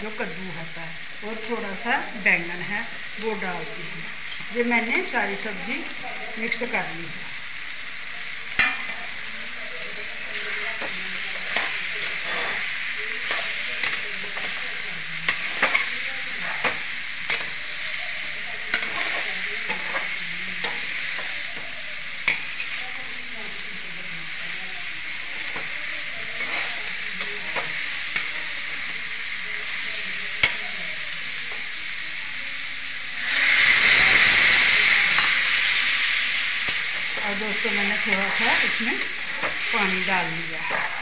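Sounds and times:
vegetables sizzling in a pan: 0.0 - 41.0
metal spatula scraping a pan: 10.1 - 22.9, 25.3 - 28.8, 36.6 - 41.0.

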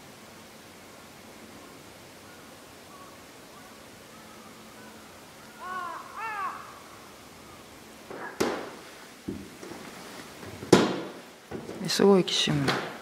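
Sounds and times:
crow cawing: 2.3 - 8.7
sharp knocks and clatters: 10.4 - 11.8.

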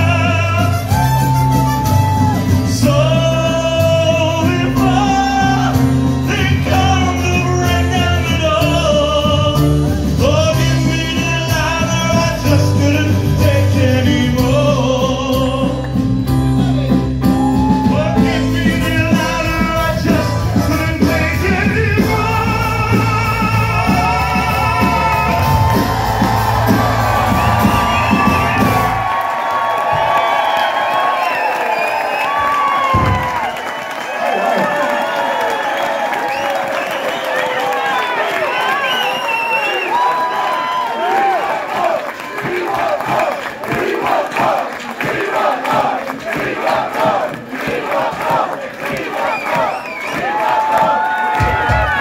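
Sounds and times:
person singing into microphone: 0.0 - 16.1, 17.6 - 25.9
live band playing: 0.0 - 30.2.

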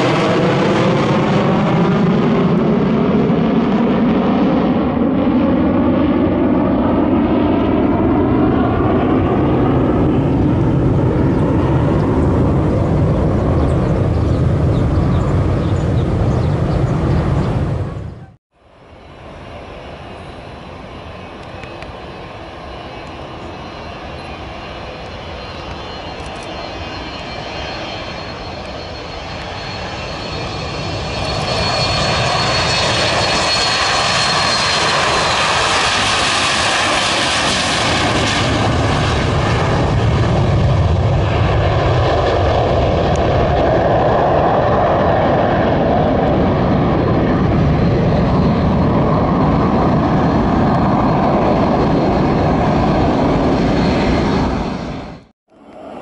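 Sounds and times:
jet engines roaring at takeoff: 0.0 - 56.0
thin high whine: 18.6 - 35.4.

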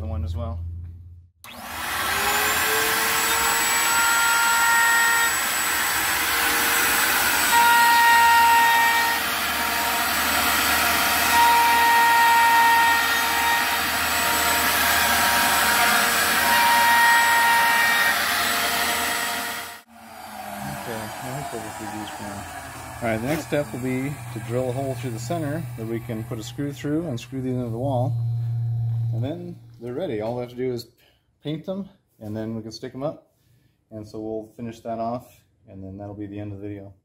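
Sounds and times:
router running at full speed: 1.5 - 29.1
router bit whine cutting wood: 1.5 - 29.5.

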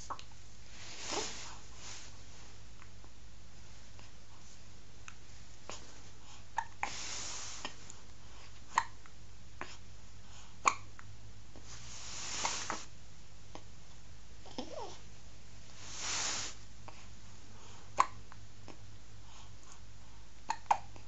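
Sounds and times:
soft breathy sounds: 0.0 - 21.0
baby hiccupping: 8.7 - 9.0, 18.0 - 18.2, 20.5 - 21.0.

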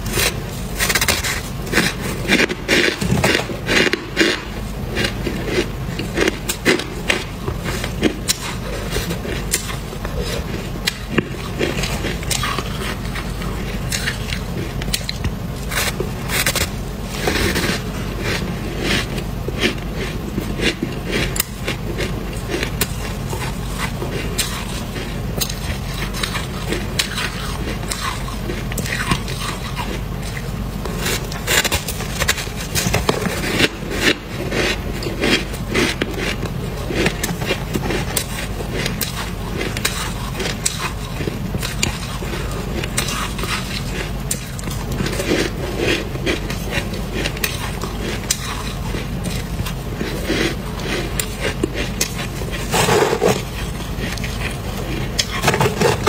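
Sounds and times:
ice crunching: 36.9 - 56.0.

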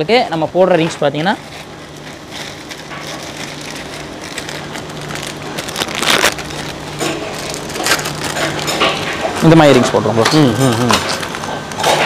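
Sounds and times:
steady low hum: 0.0 - 12.0
packaged parts rustling and clattering: 1.4 - 9.1.

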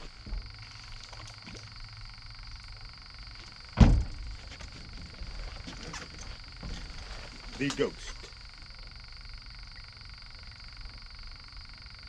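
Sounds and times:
frogs calling: 0.0 - 4.0, 4.6 - 12.0
loud thump: 3.8 - 4.4.

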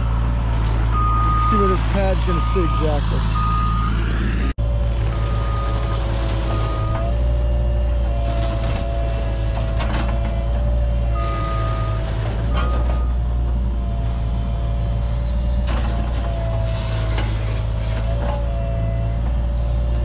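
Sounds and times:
excavator engine running: 0.0 - 20.0.

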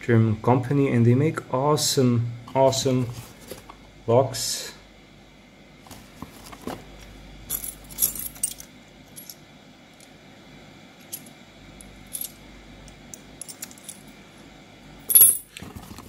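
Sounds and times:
keys jangling on a ring: 7.5 - 9.4, 13.4 - 14.1, 15.1 - 15.5.

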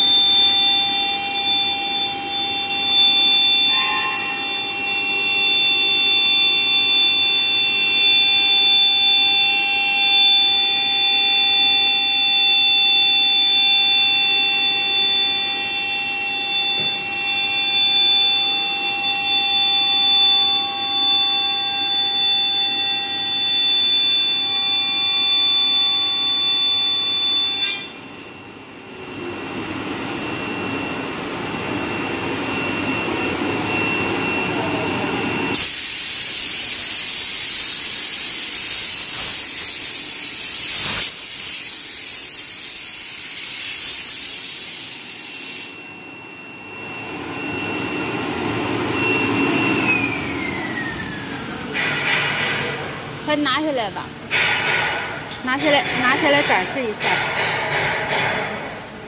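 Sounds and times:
air blow gun hissing: 35.6 - 45.8.

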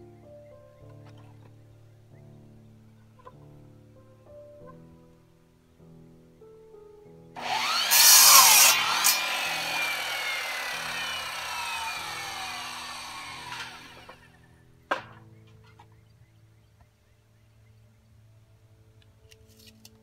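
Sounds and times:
miter saw cutting wood: 7.4 - 14.3
saw blade winding down whine: 7.4 - 14.3.

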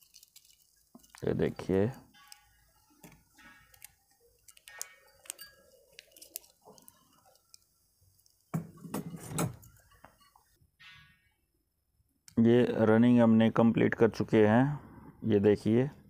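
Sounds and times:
handling rustle: 0.0 - 8.5
wire clicks and rustles: 0.0 - 10.6.

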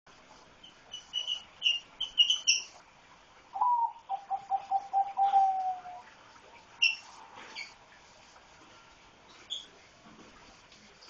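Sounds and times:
lovebirds chirping: 0.6 - 2.8, 3.6 - 6.1
lower pulsing bird call: 3.6 - 6.1.

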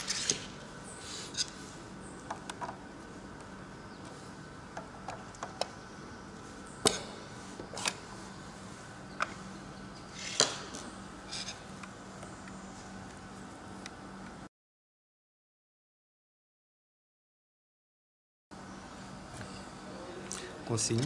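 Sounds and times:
faint steady hum: 0.0 - 14.5, 18.5 - 21.0.

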